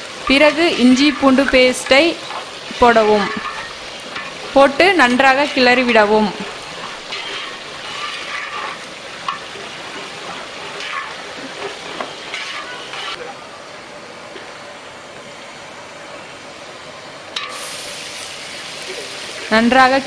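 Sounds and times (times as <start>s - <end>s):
food sizzling in oil: 0.0s - 13.3s, 16.2s - 20.0s
spoon scraping: 6.4s - 13.2s.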